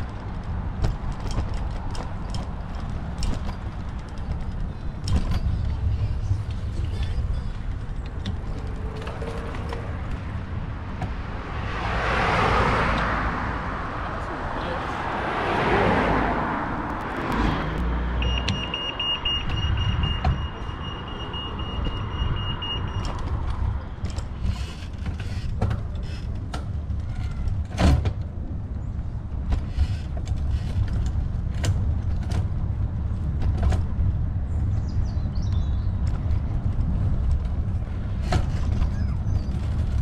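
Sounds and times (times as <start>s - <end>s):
sharp knocks and rattles: 0.0s - 11.5s
bicycle road noise: 0.0s - 40.0s
wind rumble on microphone: 21.7s - 40.0s.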